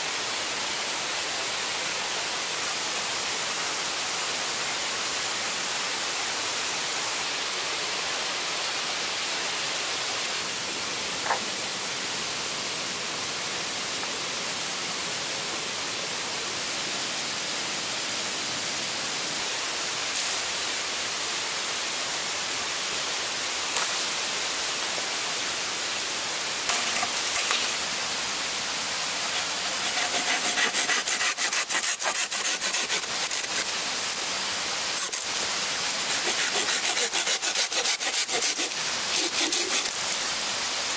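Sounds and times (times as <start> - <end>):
flowing water: 19.0 - 40.9
saw cutting bamboo: 26.7 - 27.8, 29.2 - 34.3, 35.0 - 40.2.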